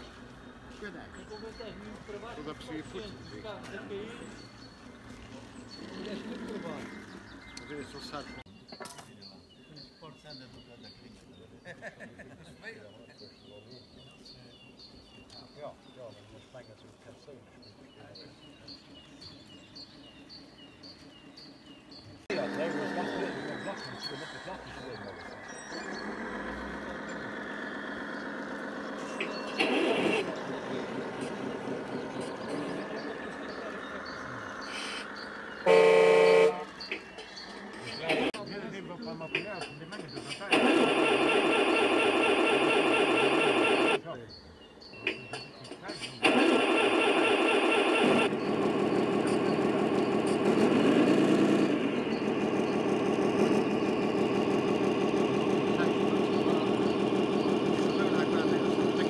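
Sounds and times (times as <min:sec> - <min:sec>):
model truck engine sound: 0:18.1 - 0:44.0, 0:45.0 - 0:59.0.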